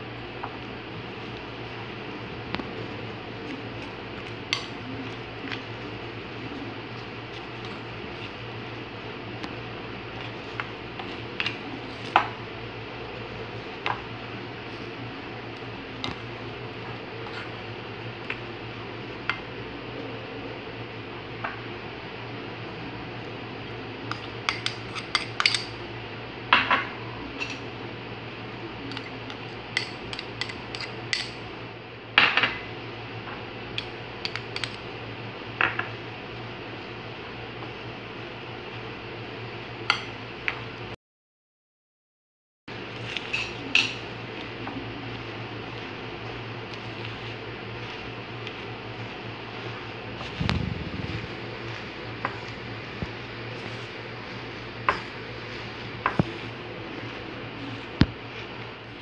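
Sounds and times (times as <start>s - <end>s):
steady low hum: 0.0s - 41.0s, 42.7s - 59.0s
hand mixing food in bowl: 0.2s - 20.0s, 42.8s - 59.0s.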